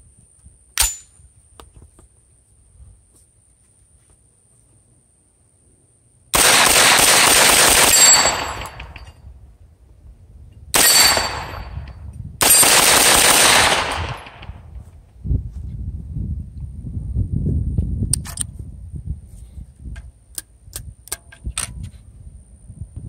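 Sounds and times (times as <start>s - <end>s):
rapid gunfire: 6.4s - 8.9s, 12.4s - 14.5s.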